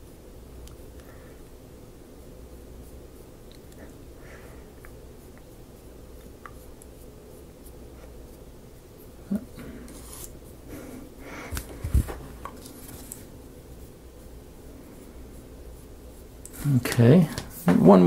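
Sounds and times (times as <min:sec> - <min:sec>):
paintbrush scratching on wood: 0:09.9 - 0:10.6.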